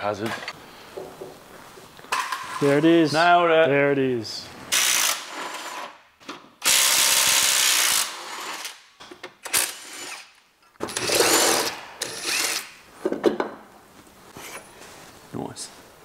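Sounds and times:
cordless power tool driving bolts: 9.4 - 12.7.

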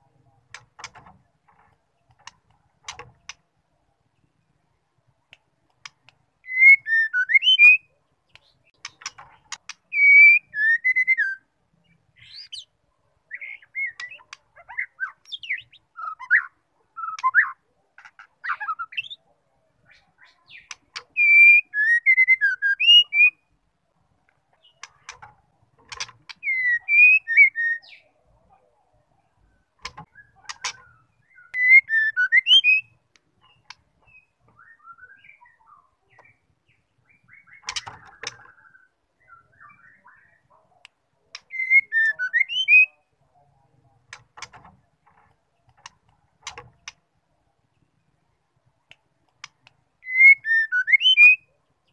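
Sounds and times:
sharp clicks: 0.4 - 3.5, 5.3 - 6.2, 8.3 - 9.9, 24.3 - 26.4, 37.6 - 38.5, 44.1 - 47.0
bird whistled calls: 6.4 - 7.9, 26.4 - 28.0, 41.5 - 43.0, 50.0 - 51.5.

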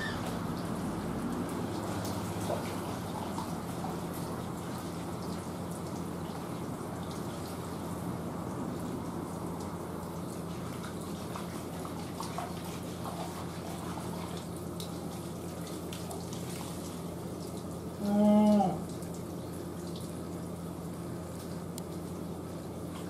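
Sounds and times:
running water: 0.0 - 23.0.

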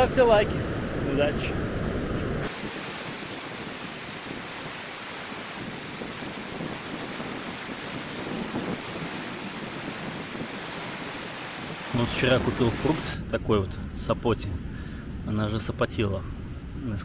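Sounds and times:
ocean waves breaking on beach: 0.0 - 13.2.

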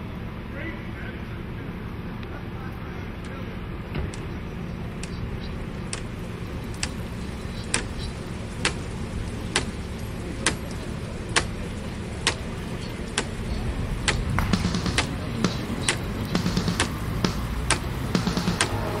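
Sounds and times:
traffic rumble: 0.0 - 19.0
sharp repeating tick: 13.1 - 19.0.

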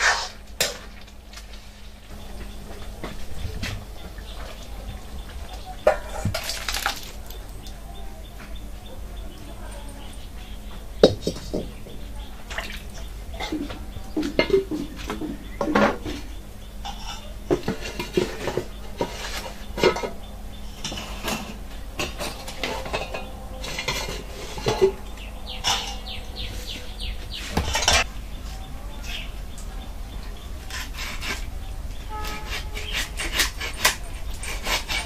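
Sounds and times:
metal pots and lids clanking: 2.2 - 7.6, 11.0 - 28.1.

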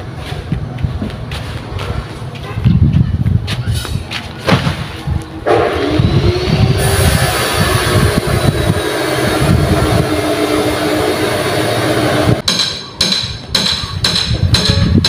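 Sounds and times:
engine running: 5.4 - 12.6.

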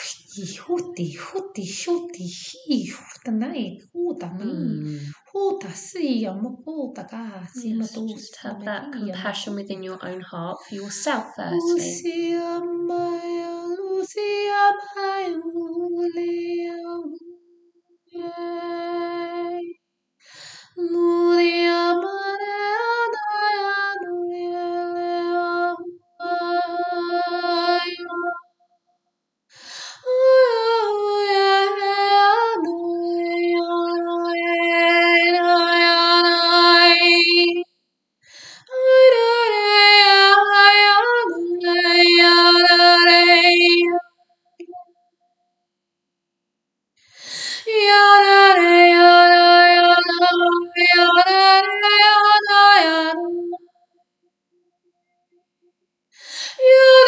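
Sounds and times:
woman singing held notes: 0.0 - 1.0, 4.2 - 5.7, 10.6 - 13.3
woman toning wordless long notes: 4.0 - 5.3, 9.8 - 12.3
woman breathing in: 20.2 - 20.7, 29.5 - 30.0, 38.2 - 38.7, 47.0 - 47.7, 56.2 - 56.6.

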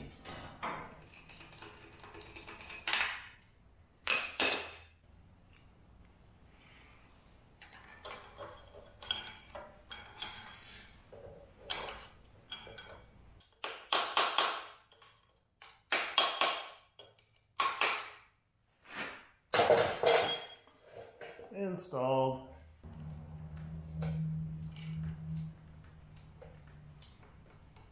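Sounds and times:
metallic clinks of tools: 20.0 - 20.8.

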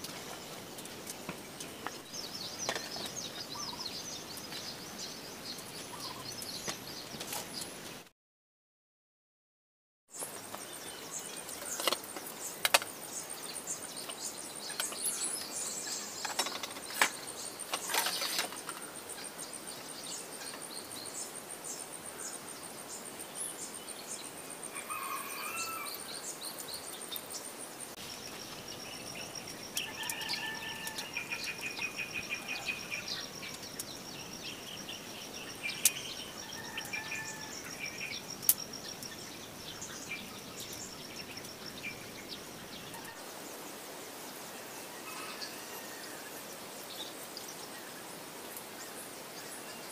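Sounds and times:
birds chirping: 0.0 - 7.9, 10.1 - 44.4
insect trilling: 28.0 - 42.3.

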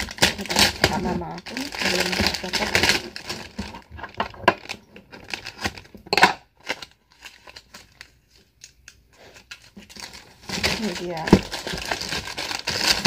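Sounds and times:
faint plastic rustles: 0.0 - 6.0, 6.6 - 13.0
plastic bag ripping: 0.0 - 6.0, 9.4 - 13.0
plastic bag crinkling: 0.0 - 13.0.

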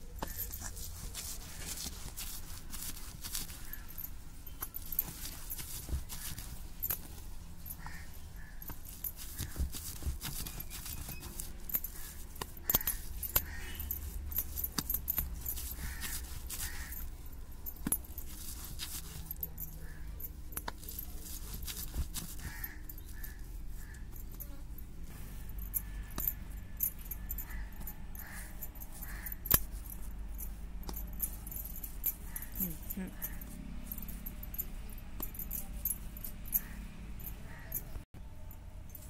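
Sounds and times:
stone rubbing on stone: 0.1 - 24.6.

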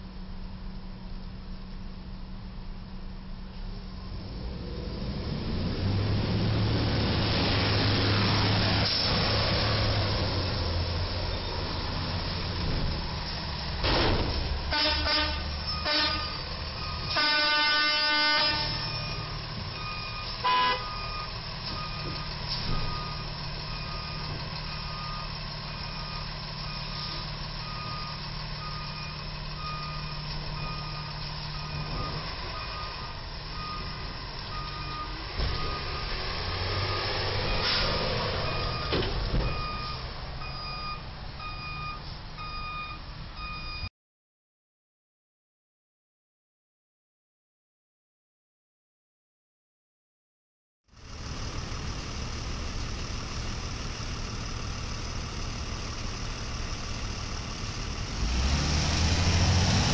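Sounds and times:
truck engines and traffic rumble: 0.0 - 43.9, 50.9 - 59.9
truck reversing alarm beeping: 14.4 - 43.9, 51.0 - 59.9
vehicle horns honking: 14.7 - 16.4, 17.1 - 19.0, 20.4 - 21.0.

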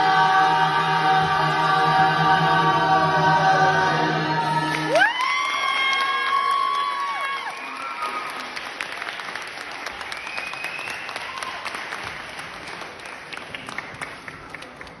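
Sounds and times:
audience cheering: 4.7 - 12.3
audience applauding: 4.7 - 15.0.

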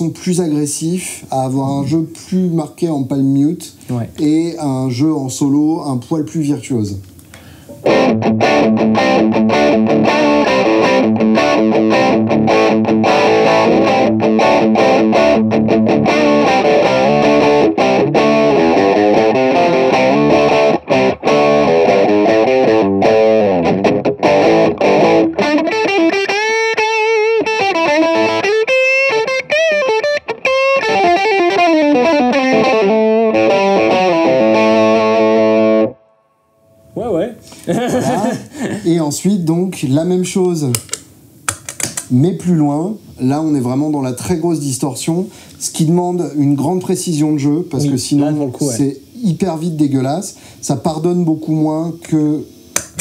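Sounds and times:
distorted electric guitar: 7.8 - 37.0.

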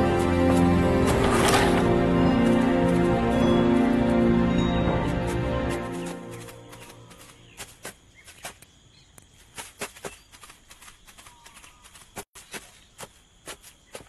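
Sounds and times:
background music: 0.0 - 7.4
footsteps through dry leaves: 0.0 - 8.6.

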